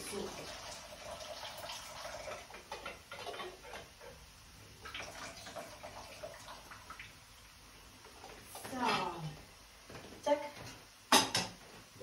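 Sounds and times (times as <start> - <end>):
water splashing into sink: 0.0 - 4.2, 4.8 - 7.2.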